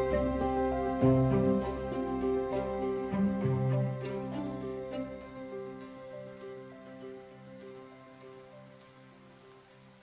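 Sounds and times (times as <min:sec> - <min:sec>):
soft background music: 0:00.0 - 0:10.0.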